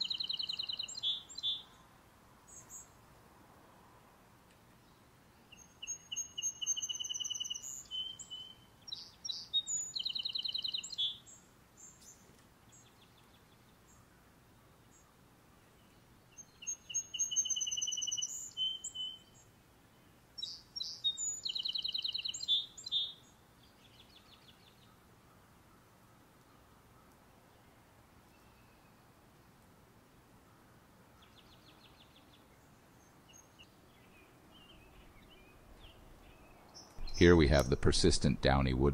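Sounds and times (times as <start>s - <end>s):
songbird singing trills: 0.0s - 1.8s, 4.8s - 14.0s, 15.8s - 19.5s, 20.4s - 25.0s, 31.2s - 38.9s.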